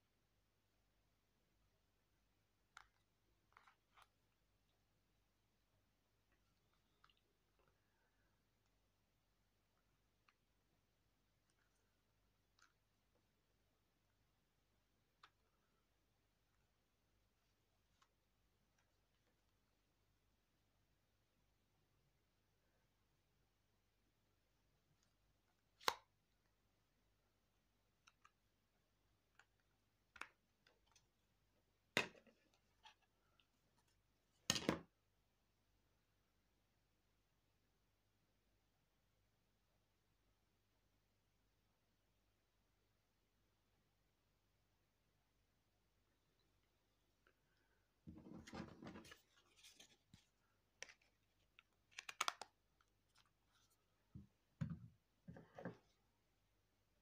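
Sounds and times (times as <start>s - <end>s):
plastic phone rustling and scraping: 48.1s - 52.4s.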